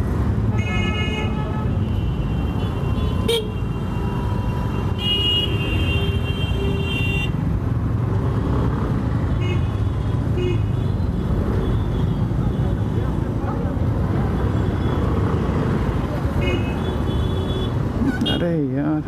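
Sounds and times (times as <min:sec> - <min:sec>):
scooter engine and road rumble: 0:00.0 - 0:19.0
vehicle horns honking: 0:00.5 - 0:07.4, 0:16.4 - 0:18.5.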